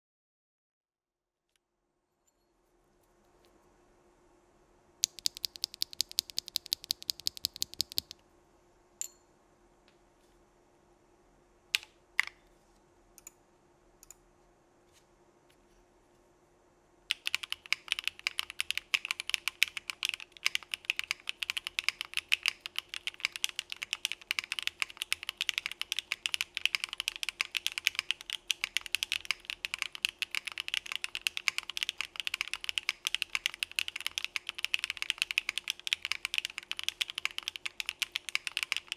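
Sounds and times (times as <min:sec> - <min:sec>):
keyboard switch clicking: 0:05.0 - 0:08.1
typing on keyboard: 0:05.0 - 0:08.2, 0:17.1 - 0:38.9.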